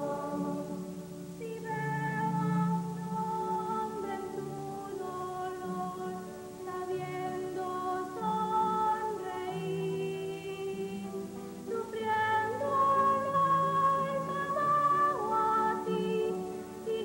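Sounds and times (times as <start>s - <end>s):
children's choir singing: 0.0s - 17.0s.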